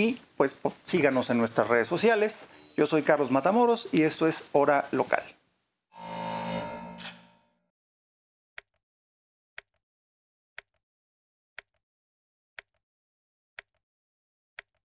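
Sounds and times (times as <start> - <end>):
clock ticking: 14.6 - 14.8.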